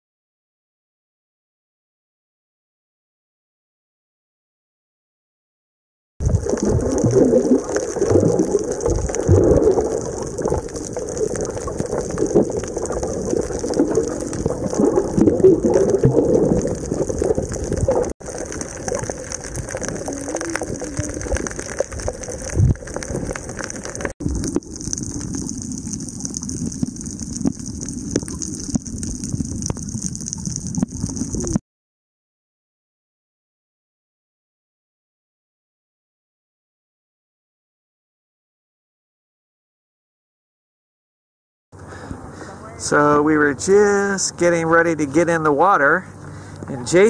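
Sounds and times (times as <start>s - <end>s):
muffled underwater water rushing: 6.2s - 31.6s.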